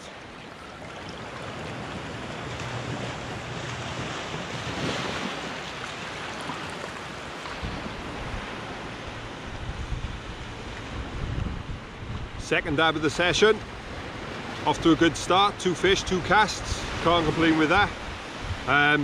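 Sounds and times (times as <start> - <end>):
small waves washing on shore: 0.0 - 19.0
wind rumbling on microphone: 1.1 - 12.4, 17.7 - 18.7.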